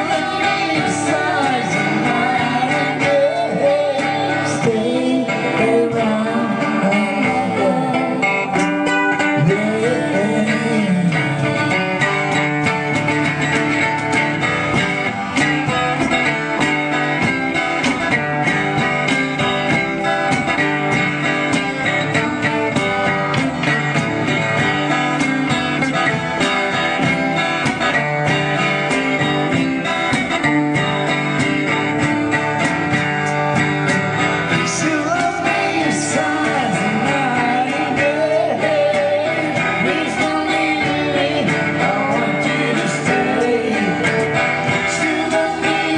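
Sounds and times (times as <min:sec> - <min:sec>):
woman singing: 0:00.0 - 0:11.8, 0:34.5 - 0:45.9
acoustic guitar strumming: 0:00.0 - 0:45.9.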